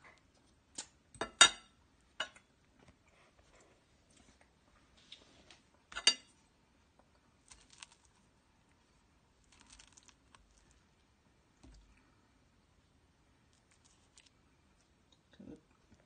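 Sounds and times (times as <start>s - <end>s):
metal fork clinking on plate: 5.9s - 6.3s.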